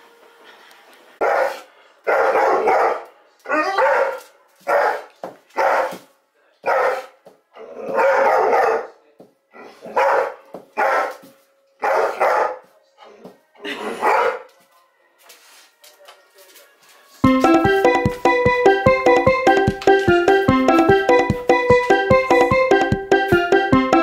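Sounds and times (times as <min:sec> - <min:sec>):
dog barking excitedly: 0:01.2 - 0:06.0, 0:06.6 - 0:08.9, 0:09.6 - 0:11.2, 0:11.8 - 0:12.6, 0:14.0 - 0:14.5.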